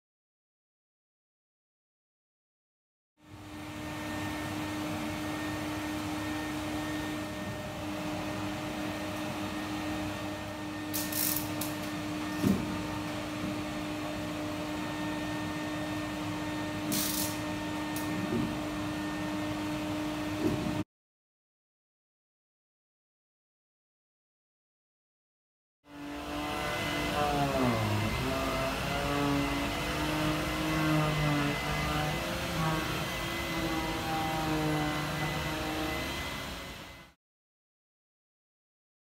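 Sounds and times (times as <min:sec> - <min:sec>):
vacuum cleaner humming: 0:03.2 - 0:20.8, 0:25.9 - 0:37.2.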